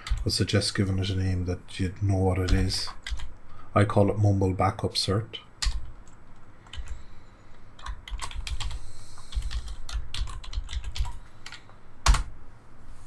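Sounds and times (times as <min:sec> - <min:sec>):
typing on computer keyboard: 0:02.5 - 0:03.3, 0:05.6 - 0:06.0, 0:06.6 - 0:07.0, 0:07.8 - 0:12.3.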